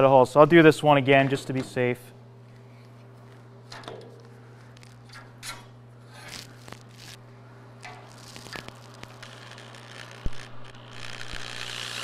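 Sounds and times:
low steady hum: 0.0s - 12.0s
gloved hands rubbing: 8.0s - 9.9s.

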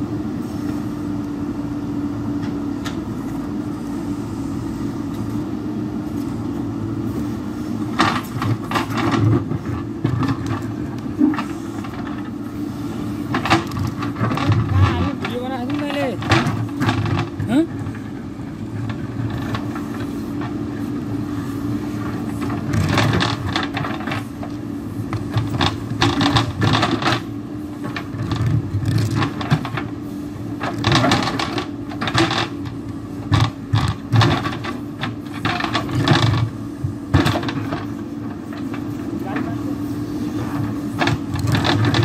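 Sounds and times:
diesel engine running under load: 0.0s - 42.0s.

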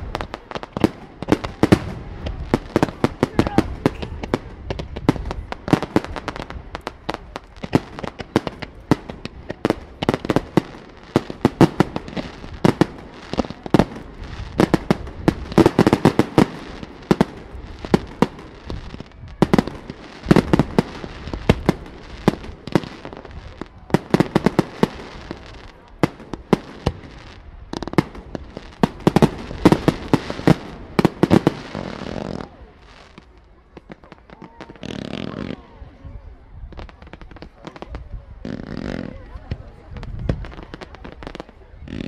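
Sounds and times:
fireworks bursting: 0.0s - 42.0s.

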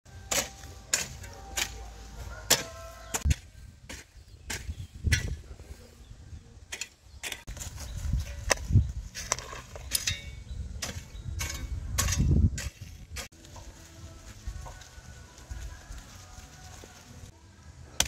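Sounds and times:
hoe chopping and scraping soil: 0.1s - 5.5s, 6.7s - 13.7s.

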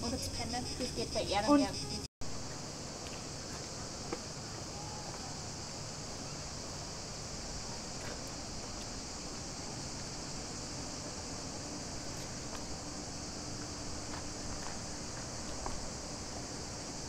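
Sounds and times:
cicadas buzzing: 0.0s - 17.0s.

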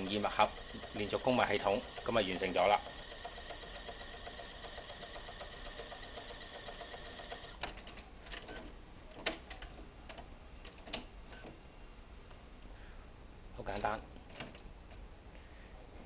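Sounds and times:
sharp printer clicks: 0.0s - 8.6s
printer mechanism whine and ticking: 0.0s - 11.6s.

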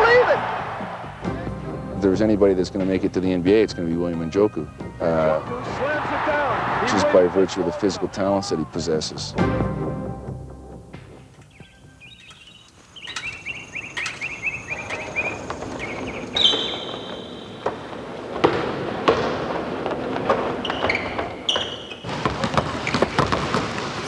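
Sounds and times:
shoes squeaking on court: 11.4s - 24.0s
basketballs bouncing: 14.0s - 24.0s.

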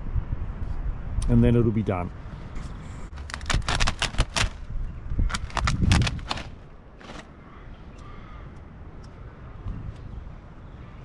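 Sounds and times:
sharp clicks and crackles: 3.1s - 4.7s, 5.3s - 7.3s.

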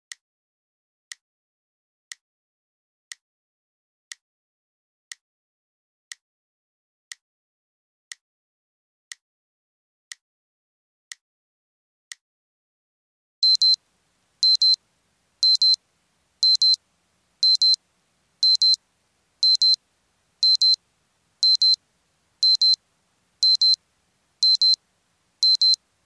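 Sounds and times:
alarm clock double beeps: 13.4s - 13.8s, 14.4s - 14.8s, 15.4s - 15.8s, 16.4s - 16.8s, 17.4s - 17.8s, 18.4s - 18.8s, 19.4s - 19.8s, 20.4s - 20.8s, 21.4s - 21.8s, 22.4s - 22.8s, 23.4s - 23.8s, 24.4s - 24.8s, 25.4s - 25.8s.

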